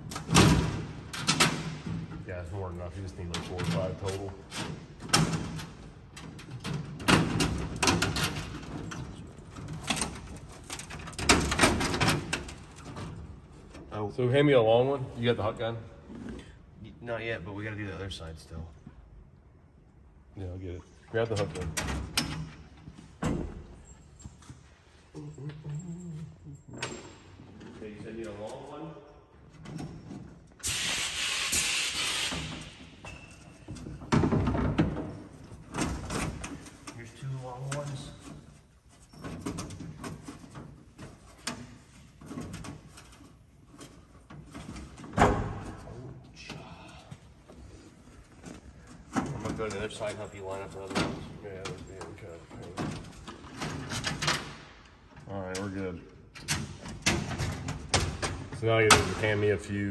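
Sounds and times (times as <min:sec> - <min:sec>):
compressed air hissing: 0:30.6 - 0:32.8
pneumatic gun rattling bursts: 0:30.6 - 0:33.0.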